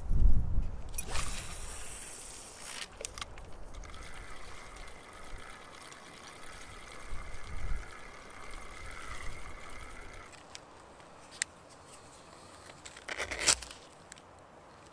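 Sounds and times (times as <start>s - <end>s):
wind gusting on microphone: 0.0s - 2.4s.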